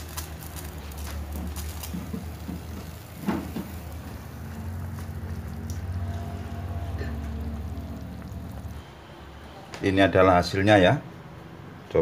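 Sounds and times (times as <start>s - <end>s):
curry bubbling in a pot: 0.0s - 9.2s
low steady hum: 2.4s - 9.8s.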